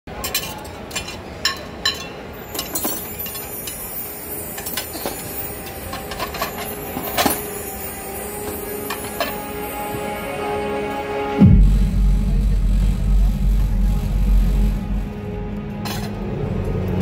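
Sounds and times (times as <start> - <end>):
glassware and cutlery clinking: 0.1 - 9.6.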